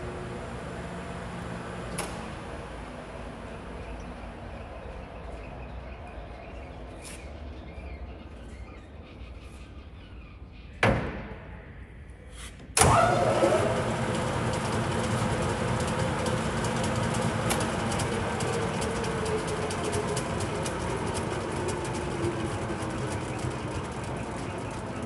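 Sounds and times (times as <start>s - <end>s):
lathe clunking: 12.8s - 25.0s
lathe running: 12.8s - 25.0s.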